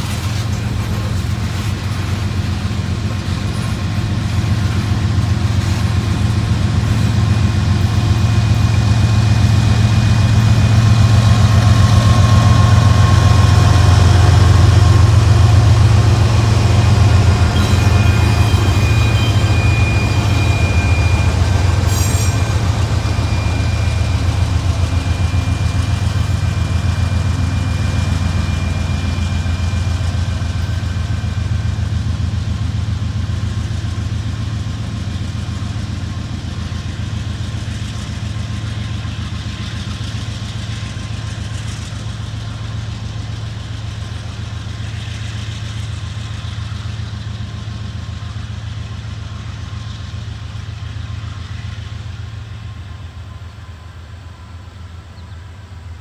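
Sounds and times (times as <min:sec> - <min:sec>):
locomotive rumble: 0:00.0 - 0:56.0
thin high whine: 0:17.0 - 0:29.8.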